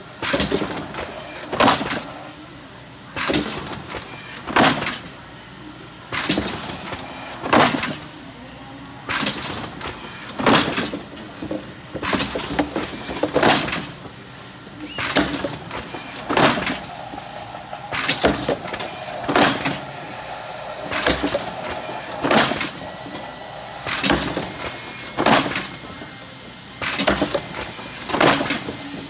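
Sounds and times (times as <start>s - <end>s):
tray former mechanical strokes: 6.0s - 29.0s.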